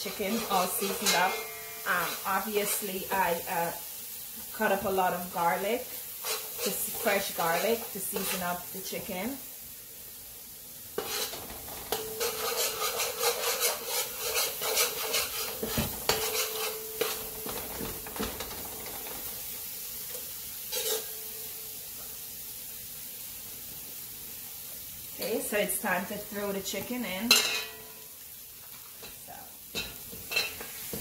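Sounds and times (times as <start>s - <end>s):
metal spoon scraping a pan: 0.0s - 3.2s, 6.0s - 9.1s, 11.0s - 17.6s, 20.1s - 21.5s, 27.3s - 28.0s, 29.8s - 31.0s
oil sizzling: 0.0s - 31.0s.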